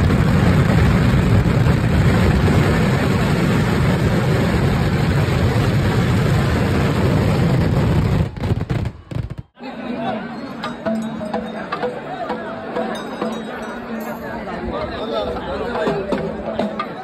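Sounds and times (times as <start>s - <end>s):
firecrackers exploding in a rumble: 0.0s - 9.6s.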